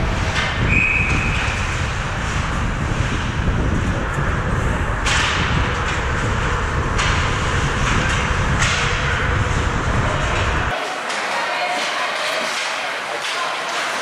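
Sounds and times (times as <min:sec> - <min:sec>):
low rumble: 0:00.0 - 0:10.7
skates scraping on ice: 0:10.7 - 0:14.0.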